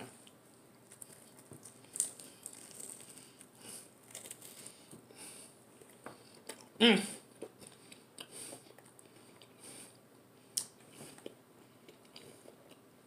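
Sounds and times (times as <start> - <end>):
crinkly mouth sounds: 0.2 - 5.0, 5.8 - 9.6, 10.6 - 12.9
crunchy chewing: 0.7 - 4.9.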